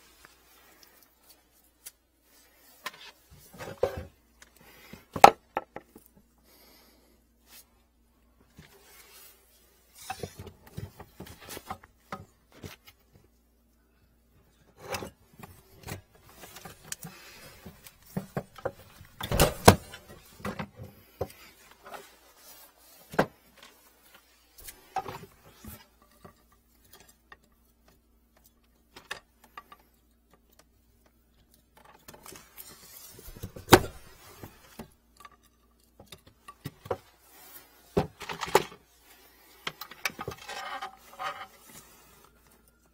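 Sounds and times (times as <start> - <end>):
plastic hose rustling: 14.5 - 42.9.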